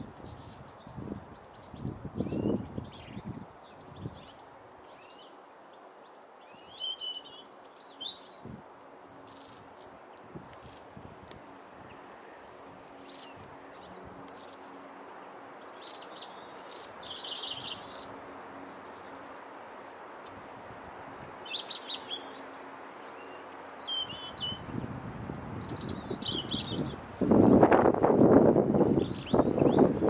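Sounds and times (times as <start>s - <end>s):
songbirds chirping: 0.0s - 30.0s
steady outdoor hiss: 0.0s - 30.0s.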